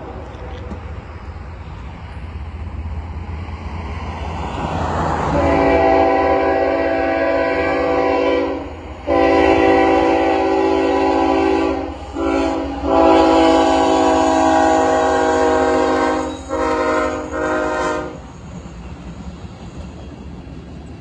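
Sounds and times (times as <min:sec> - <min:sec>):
locomotive air horn blasts: 0:05.3 - 0:18.3.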